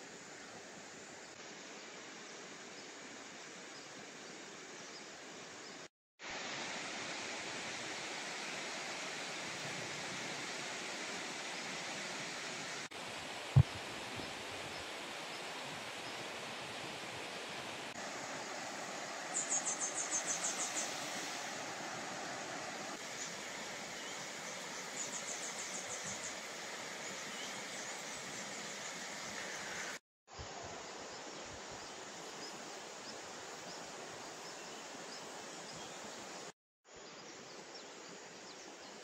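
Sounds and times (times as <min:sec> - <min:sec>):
water rushing: 0:06.2 - 0:30.0.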